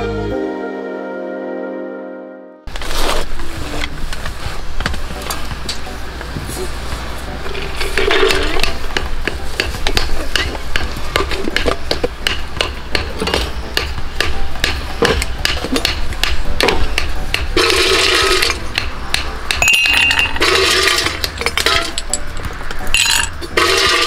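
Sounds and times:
ice cubes clinking in metal bottle: 19.6s - 22.2s.

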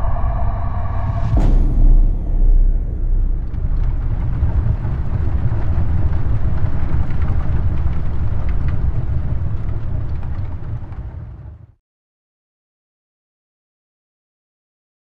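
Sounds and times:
deep explosion rumble: 0.0s - 11.7s.

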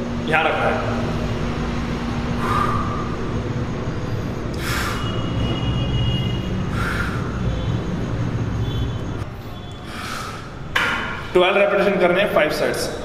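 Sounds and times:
man breathing out hard: 2.4s - 3.2s, 4.5s - 5.2s, 6.6s - 7.5s, 9.8s - 10.6s.

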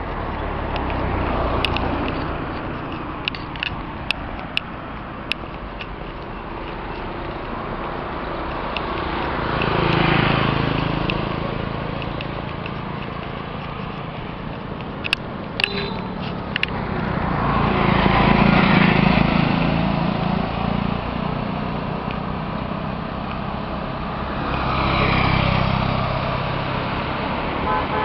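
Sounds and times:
road traffic noise: 0.0s - 28.0s
sharp clicks: 0.7s - 16.9s
car driving past: 24.0s - 27.6s.

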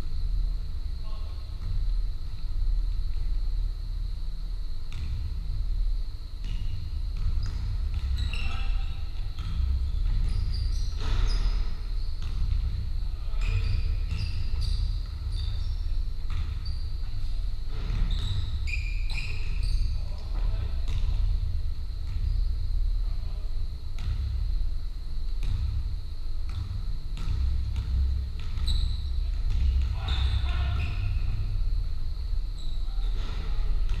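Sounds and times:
basketball bouncing on wooden floor: 6.4s - 19.9s, 20.9s - 22.5s, 23.9s - 24.5s, 25.3s - 31.8s
trainers squeaking on floor: 8.1s - 9.2s, 9.9s - 12.2s, 13.2s - 16.0s, 16.6s - 20.4s, 28.6s - 31.5s, 32.6s - 33.7s.

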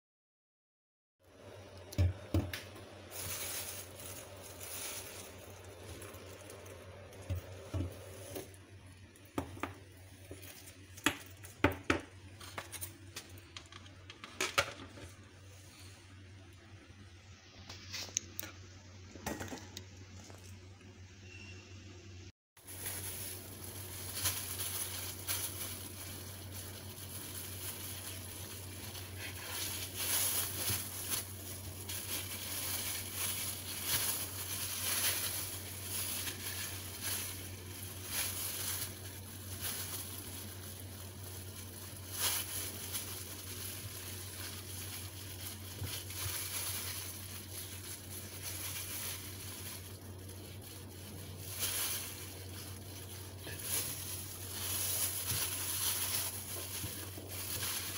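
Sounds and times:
plastic gloves crinkling: 1.2s - 16.9s, 22.6s - 57.9s.

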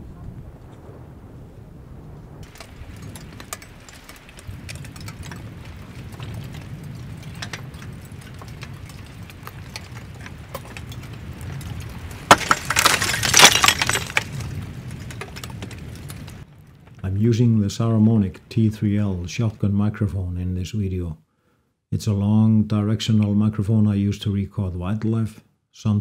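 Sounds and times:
lava crust cracking: 0.0s - 20.1s
steady low rumble: 0.0s - 20.2s.

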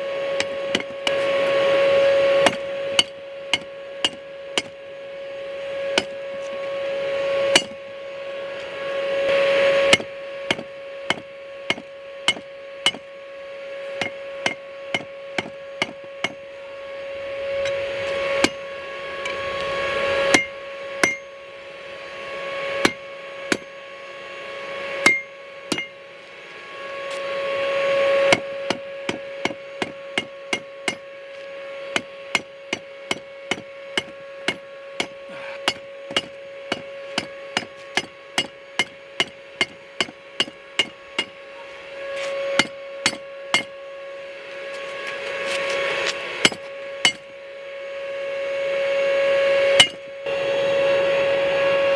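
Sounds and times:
hammer striking steel on anvil: 0.4s - 1.2s, 2.4s - 4.8s, 6.0s - 6.2s, 7.5s - 7.8s, 9.9s - 13.1s, 14.0s - 16.4s, 18.4s - 18.6s, 20.3s - 21.4s, 22.8s - 23.7s, 25.0s - 26.0s, 28.3s - 31.0s, 32.0s - 41.4s, 42.6s - 43.7s, 46.4s - 47.3s, 49.8s - 50.1s.

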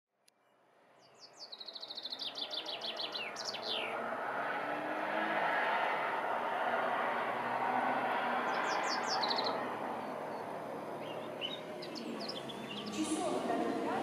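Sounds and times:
songbird singing: 0.3s - 4.2s, 7.4s - 14.0s
town traffic noise: 0.3s - 14.0s.

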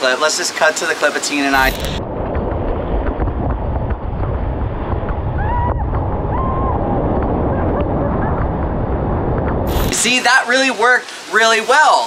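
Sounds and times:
whitewater rushing: 0.0s - 2.0s, 9.7s - 12.0s
wind buffeting microphone: 1.5s - 10.3s.

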